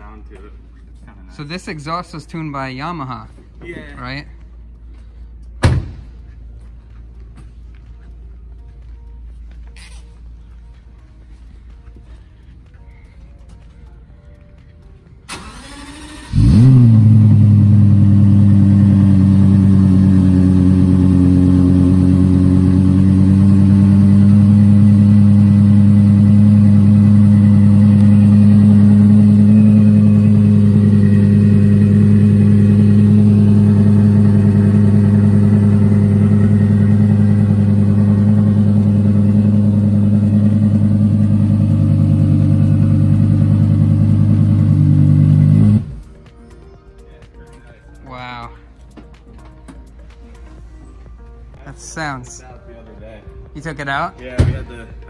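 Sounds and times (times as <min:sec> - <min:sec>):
car engine idling: 0:15.3 - 0:46.1
car engine starting and revving: 0:15.3 - 0:46.1.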